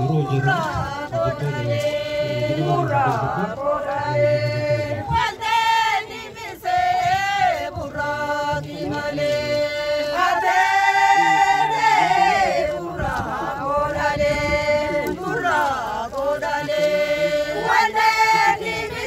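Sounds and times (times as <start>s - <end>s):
group of voices chanting: 0.0s - 19.0s.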